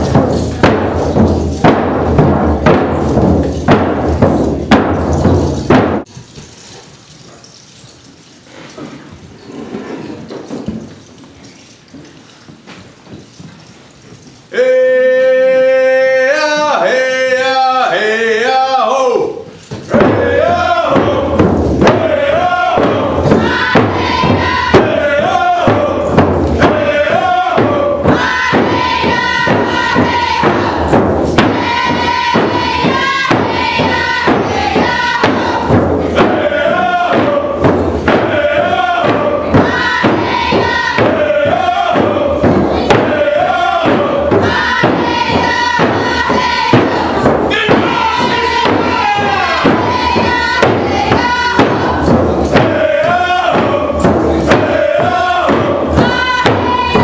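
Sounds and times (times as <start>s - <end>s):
hand frame drums beating: 0.0s - 6.2s, 19.6s - 57.0s
group chanting in unison: 14.6s - 57.0s.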